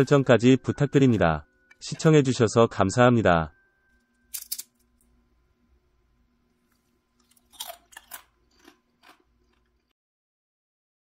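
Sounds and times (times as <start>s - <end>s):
crispy fried skin crunching: 4.3s - 5.1s, 6.6s - 9.9s.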